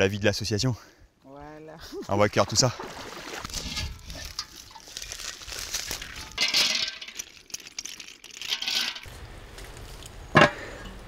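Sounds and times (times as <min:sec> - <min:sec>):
shells clattering into metal pot: 0:05.9 - 0:09.1.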